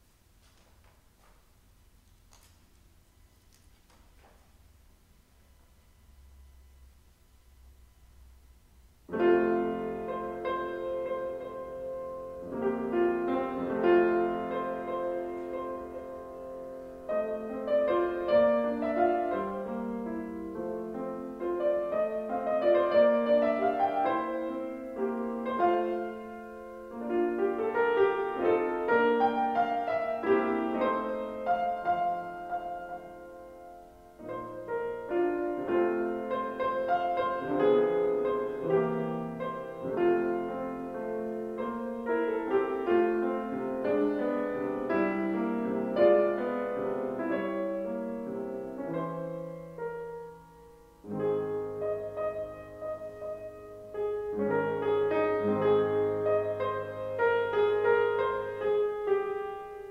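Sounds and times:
grand piano playing: 9.1 - 59.9.

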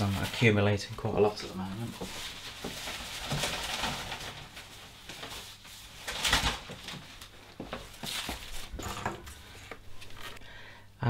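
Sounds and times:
newspaper rustling and crumpling: 1.2 - 8.8.

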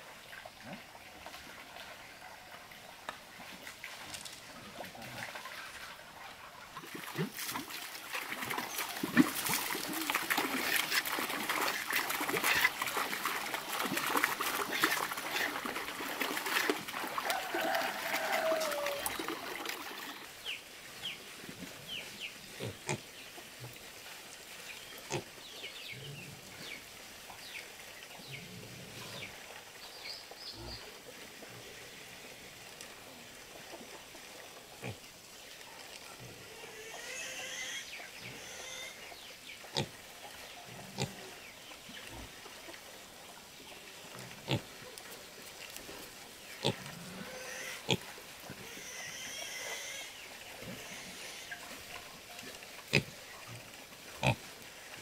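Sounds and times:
water splashing and sloshing: 0.0 - 22.0
pigs grunting: 25.1 - 25.3, 36.2 - 39.0, 39.7 - 40.0, 40.8 - 41.3, 44.1 - 44.8, 46.6 - 51.6, 52.9 - 54.5.

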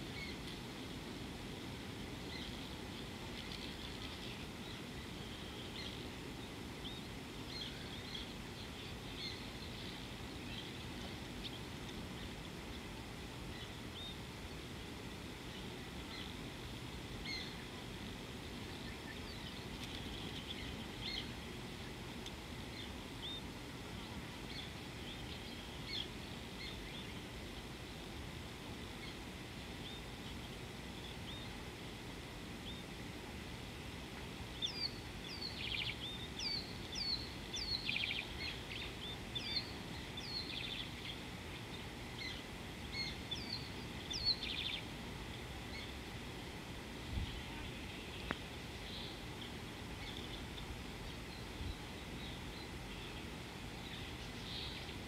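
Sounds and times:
low background rush: 0.0 - 55.0
birds chirping: 34.5 - 46.1, 47.1 - 55.0.

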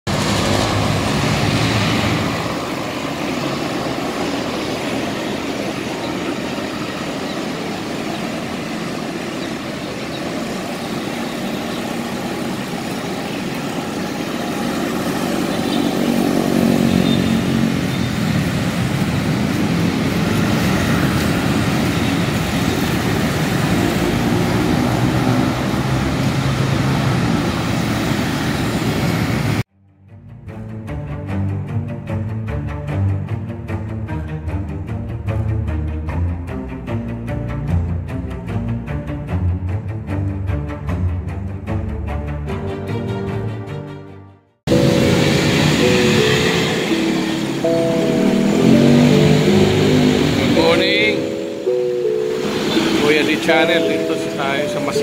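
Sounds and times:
road traffic rumble: 0.1 - 29.7, 44.7 - 55.0
vehicle engine: 0.1 - 29.7, 44.7 - 55.0.

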